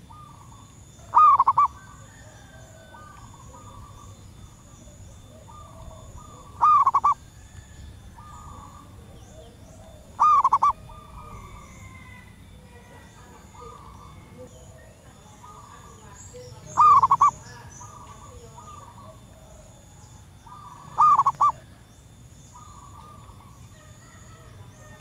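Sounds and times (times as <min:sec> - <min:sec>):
dove cooing: 0:00.0 - 0:25.0
faint bird chirps: 0:00.0 - 0:25.0.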